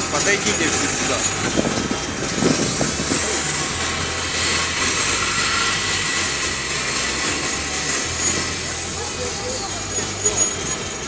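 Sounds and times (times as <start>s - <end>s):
train equipment humming: 0.0s - 11.0s.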